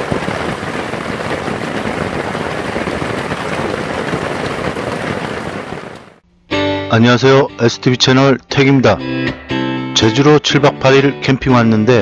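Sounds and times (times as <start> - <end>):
steady rain in forest: 0.0 - 6.2.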